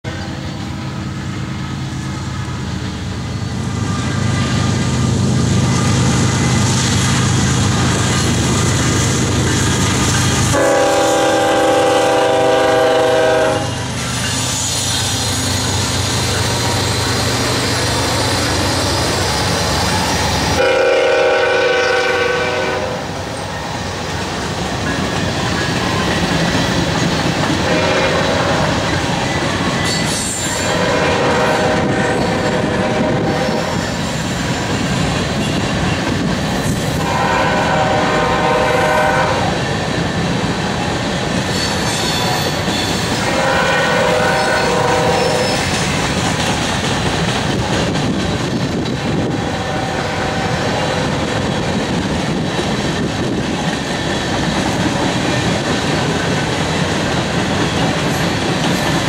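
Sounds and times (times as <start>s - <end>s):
diesel locomotive rumble: 0.0s - 59.0s
train air horn blasts: 10.5s - 14.0s, 20.5s - 23.2s, 27.6s - 28.9s, 30.5s - 33.9s, 37.0s - 39.6s, 41.6s - 45.9s, 49.2s - 51.1s
freight cars rumbling and clattering: 23.2s - 31.0s, 45.0s - 59.0s.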